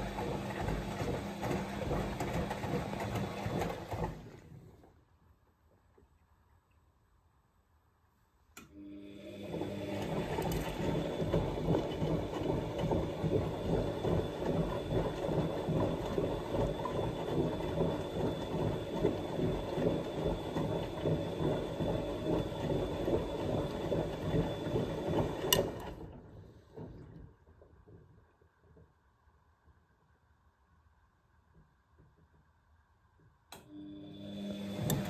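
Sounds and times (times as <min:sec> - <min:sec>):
washing machine motor whine: 0:00.0 - 0:04.7, 0:08.7 - 0:27.3, 0:33.6 - 0:35.0.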